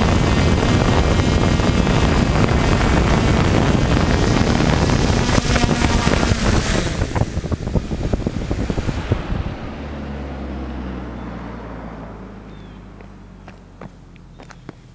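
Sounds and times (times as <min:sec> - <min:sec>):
drone propellers with wind noise: 0:00.0 - 0:14.0
motors humming low: 0:00.0 - 0:14.9
ticks on gravel: 0:13.0 - 0:14.9.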